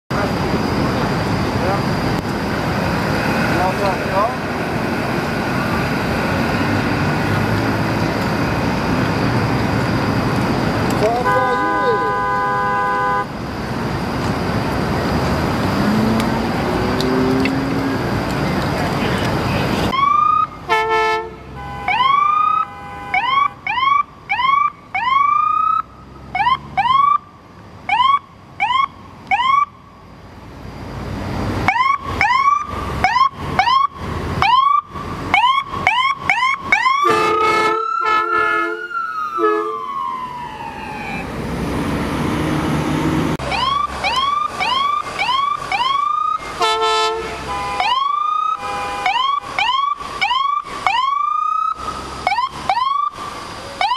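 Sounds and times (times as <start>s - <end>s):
traffic noise: 0.1s - 53.9s
stuttering horn-like tone: 11.0s - 13.3s
siren chirps: 19.9s - 21.1s, 21.8s - 27.3s, 27.9s - 30.1s, 31.6s - 41.4s, 43.4s - 47.1s, 47.8s - 53.9s.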